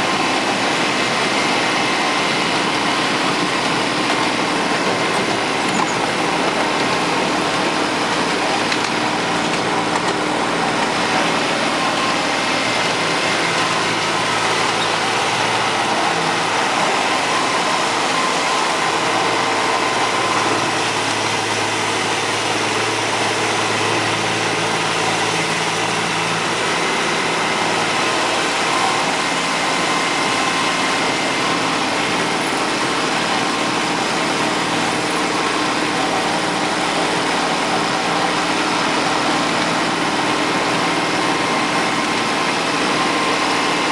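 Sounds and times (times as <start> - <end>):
miniature locomotive engine running: 0.0 - 43.9
wheel and track noise: 0.0 - 43.9.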